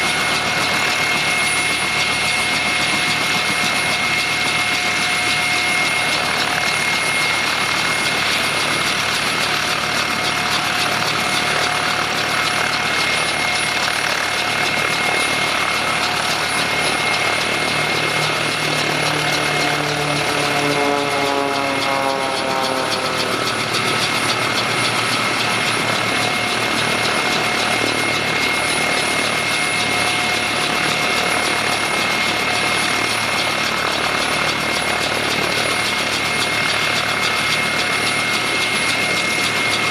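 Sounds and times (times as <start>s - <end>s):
helicopter turbine and rotor noise: 0.0s - 39.9s
high whine: 12.6s - 30.1s.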